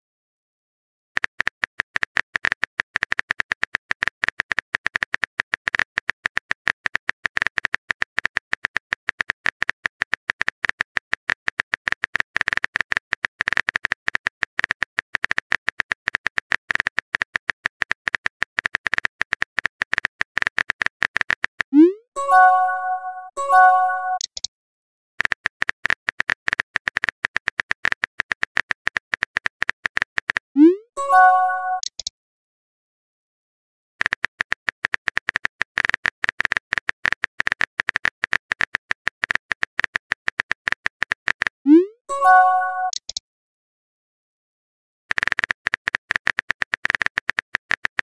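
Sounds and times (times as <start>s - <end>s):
bright chime: 22.2s - 24.2s.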